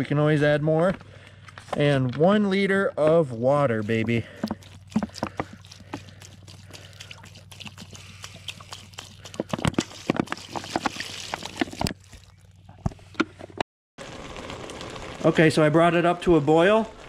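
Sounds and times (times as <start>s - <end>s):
plastic bottle clicking and crackling: 3.9s - 6.4s, 8.5s - 12.9s
water pouring into a pot: 3.9s - 12.6s.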